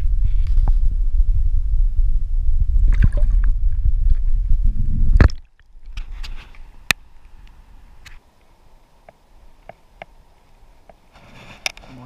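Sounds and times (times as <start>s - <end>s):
muffled underwater river rumble: 0.0s - 5.9s.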